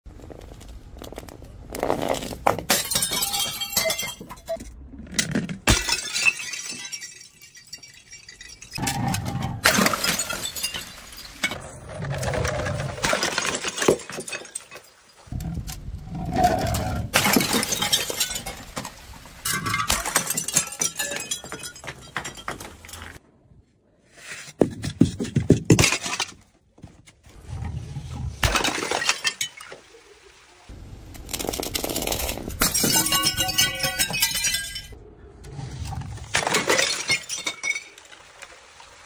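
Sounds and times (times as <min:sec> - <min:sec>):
glass bottles shattering: 0:02.5 - 0:11.7, 0:13.0 - 0:15.2, 0:16.8 - 0:23.2, 0:25.7 - 0:26.4, 0:28.4 - 0:29.8, 0:31.8 - 0:35.0, 0:36.3 - 0:38.3
glass shards clinking down steps: 0:02.7 - 0:04.7, 0:05.7 - 0:08.9, 0:09.6 - 0:11.6, 0:17.2 - 0:23.2, 0:32.6 - 0:35.0.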